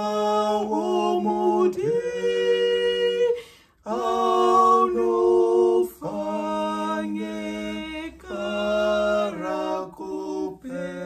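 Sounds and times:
man and woman singing a hymn: 0.0s - 11.0s.

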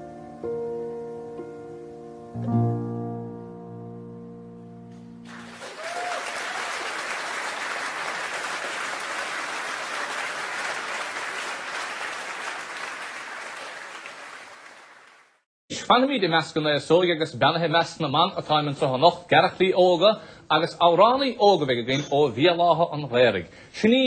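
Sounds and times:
audience applauding: 5.2s - 15.4s.

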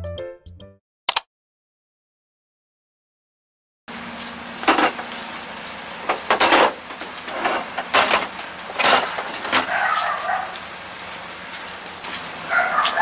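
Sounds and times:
items sliding across cargo floor: 3.9s - 13.0s.

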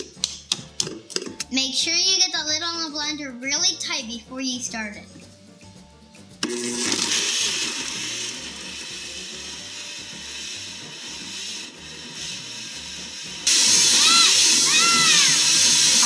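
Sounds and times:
blender running: 6.4s - 16.0s.

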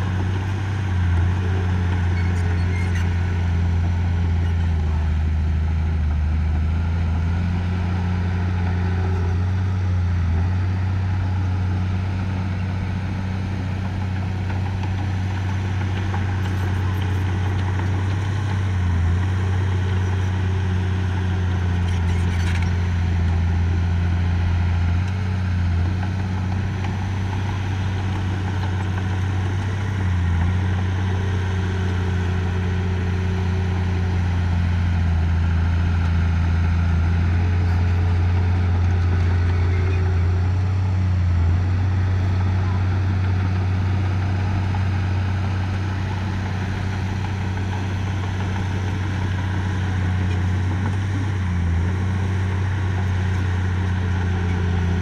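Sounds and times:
diesel engine droning: 0.0s - 55.0s.

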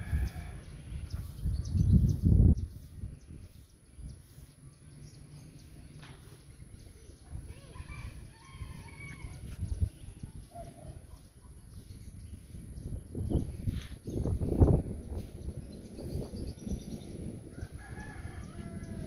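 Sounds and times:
distant rooster crowing: 0.0s - 0.7s, 7.7s - 9.6s, 17.5s - 19.0s.

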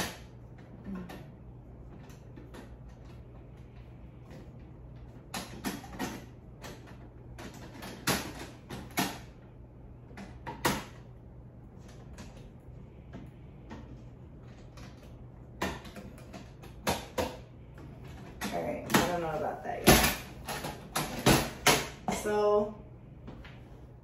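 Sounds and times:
low steady hum: 0.0s - 24.0s
easel legs clicking and rattling: 13.6s - 22.3s.

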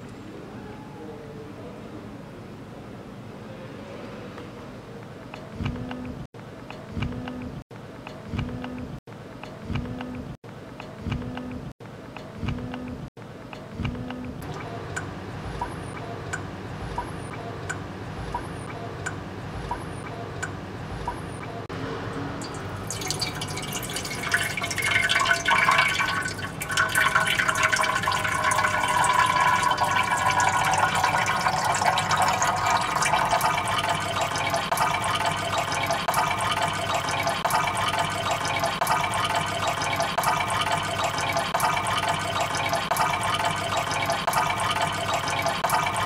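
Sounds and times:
dripping water: 22.4s - 46.0s
water running and splashing: 22.4s - 46.0s.

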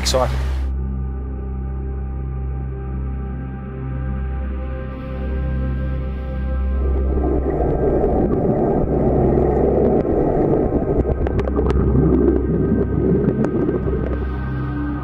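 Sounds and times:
underwater river rushing: 0.0s - 0.7s, 5.0s - 15.0s
bubbles clicking and popping: 7.0s - 14.4s.

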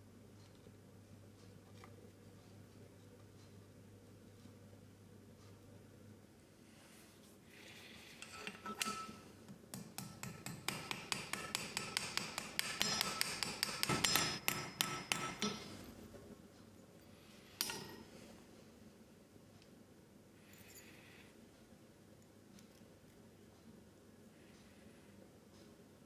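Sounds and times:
hammer tapping metal on anvil: 8.4s - 15.8s, 17.6s - 18.1s.

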